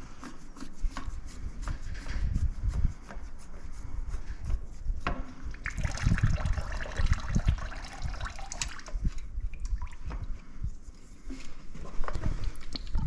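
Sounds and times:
oil trickling and dripping: 5.5 - 10.4.

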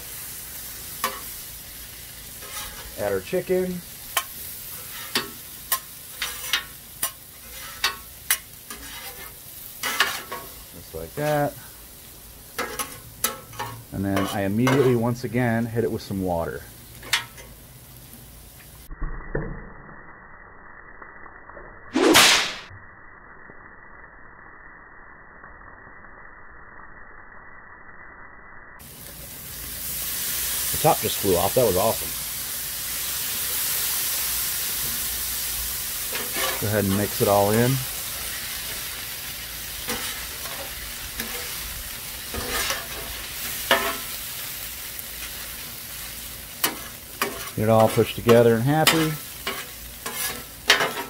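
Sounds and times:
muffled griddle sizzle: 0.0 - 51.0
metal spatulas scraping and clacking: 2.4 - 3.0, 4.1 - 10.6, 12.6 - 15.0, 36.1 - 37.3, 42.3 - 44.1, 46.6 - 51.0
whip-like crack: 22.0 - 22.7.

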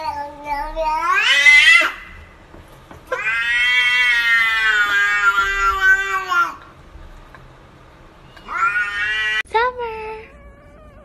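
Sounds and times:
cat meowing: 0.0 - 2.2, 3.1 - 6.7, 8.2 - 9.4, 10.2 - 11.0.

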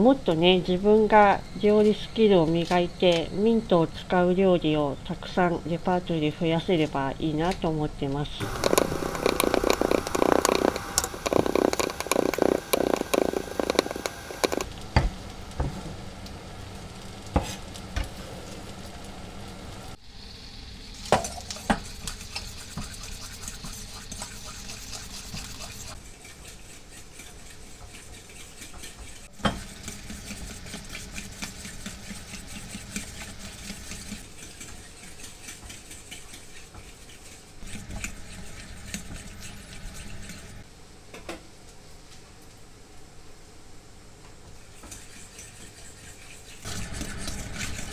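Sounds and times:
spoon stirring in metal bowl: 8.4 - 14.7, 21.5 - 40.6, 44.7 - 47.9.

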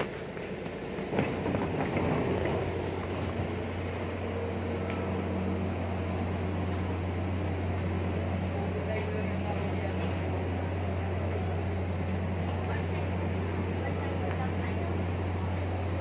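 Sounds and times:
diesel train engine humming: 0.0 - 16.0
knocks and clatter: 1.0 - 3.5.

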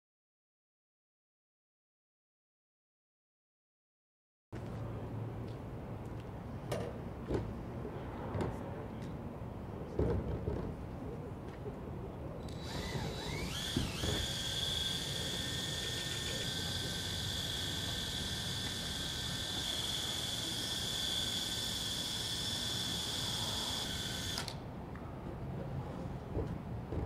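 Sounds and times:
cordless drill whining: 12.5 - 24.6.

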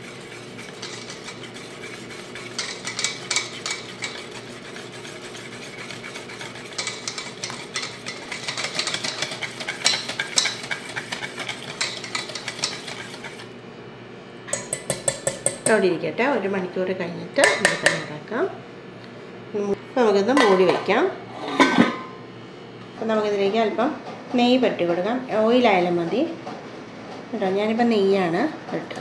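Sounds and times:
whisk clicking against steel bowl: 0.0 - 13.5, 14.5 - 15.8, 17.4 - 18.1
wet batter stirring: 0.0 - 13.6.

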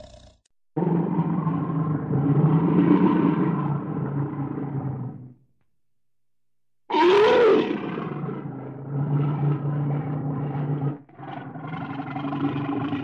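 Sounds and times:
bear growling low: 6.9 - 13.0.

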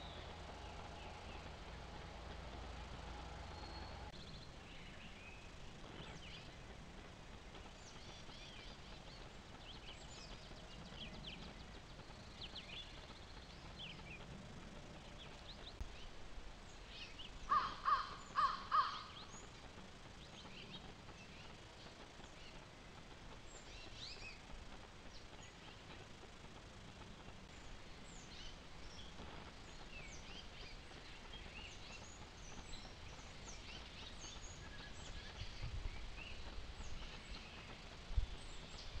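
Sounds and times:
songbirds chirping: 0.0 - 39.0
crow cawing: 17.5 - 19.2.

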